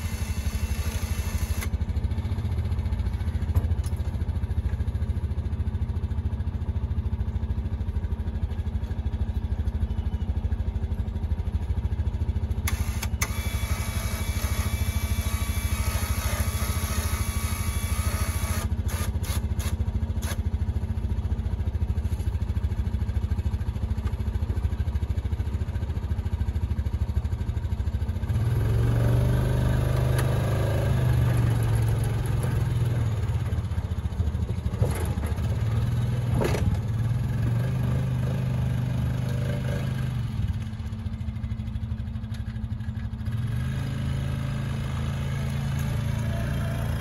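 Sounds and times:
atv engine revving: 0:28.2 - 0:41.5, 0:42.7 - 0:47.0.

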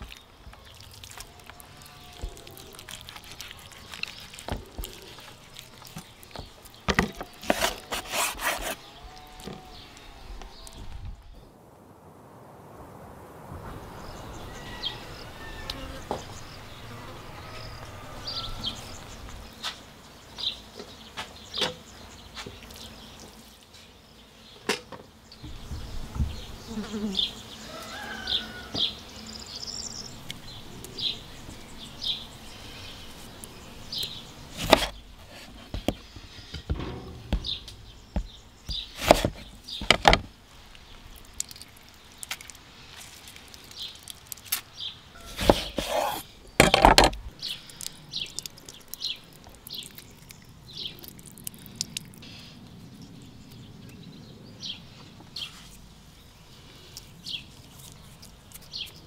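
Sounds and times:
insects buzzing: 0:12.8 - 0:59.0
knocks and clinks of food preparation: 0:35.7 - 0:40.3.

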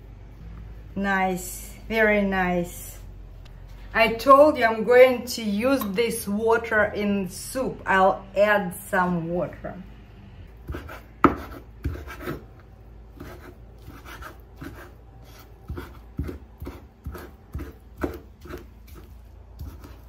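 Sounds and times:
knife chopping on wooden board: 0:10.7 - 0:12.4, 0:15.7 - 0:20.0.

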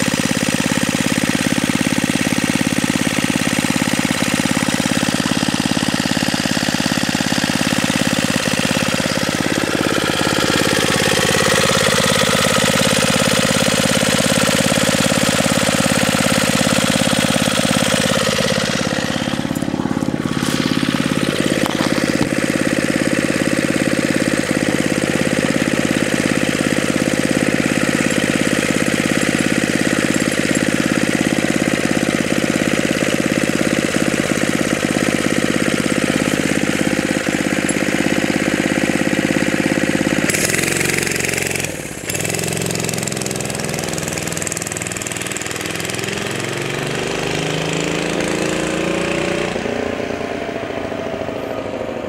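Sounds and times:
mini bike engine idling: 0:00.0 - 0:52.0
mini bike engine revving: 0:00.0 - 0:52.0.

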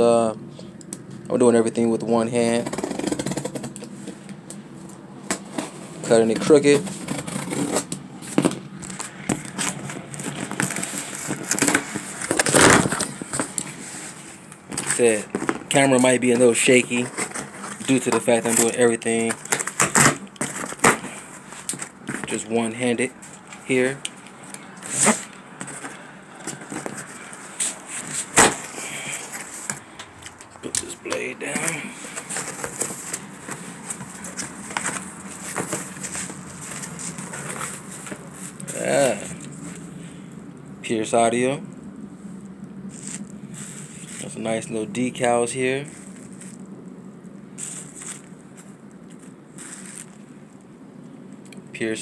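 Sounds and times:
cardboard rustling and scraping: 0:02.4 - 0:40.2, 0:42.9 - 0:46.7, 0:47.6 - 0:50.3
cardboard box being handled: 0:31.4 - 0:39.3.

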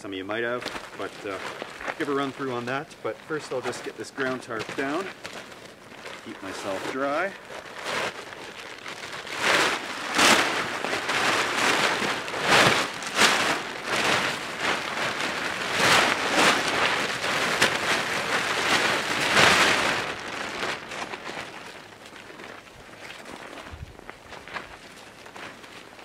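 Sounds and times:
plastic tarp crinkling and swishing: 0:00.0 - 0:26.0.

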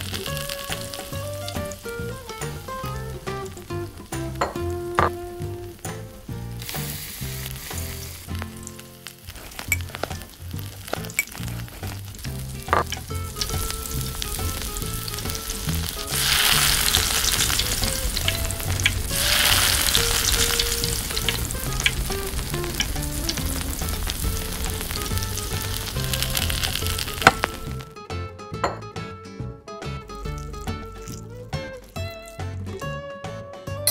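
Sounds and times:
fish frying in oil: 0:00.0 - 0:05.2, 0:06.3 - 0:27.9
soft background music: 0:00.0 - 0:33.9.

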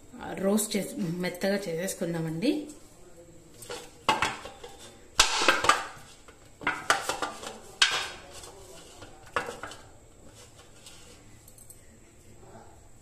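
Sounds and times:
metal plate clattering on stone: 0:03.6 - 0:09.8.

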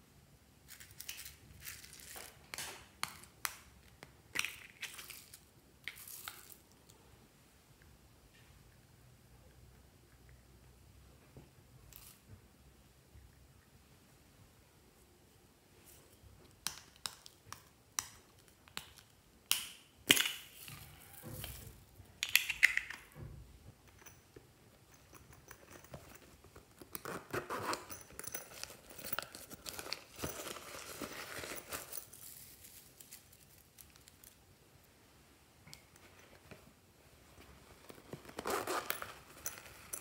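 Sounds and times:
plastic crinkling and rustling: 0:25.6 - 0:34.5.

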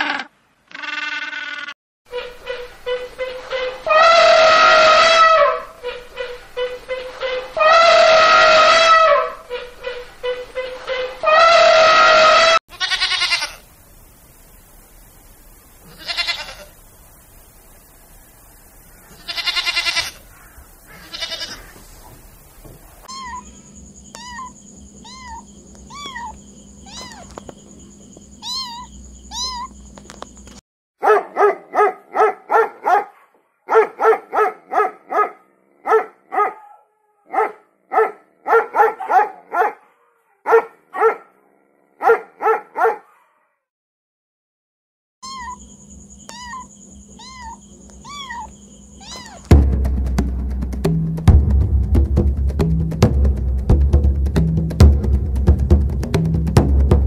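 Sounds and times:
short sharp animal calls: 0:00.0 - 0:01.8, 0:46.3 - 0:49.5
drawn-out animal calls: 0:00.0 - 0:13.6, 0:15.9 - 0:16.7, 0:19.1 - 0:22.2, 0:23.0 - 0:27.6, 0:45.2 - 0:49.6
short chirping calls: 0:15.2 - 0:30.6, 0:45.2 - 0:49.5.

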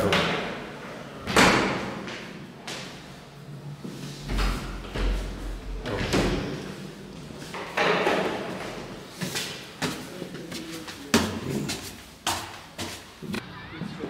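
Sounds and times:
footsteps on stone stairs: 0:09.1 - 0:13.2.

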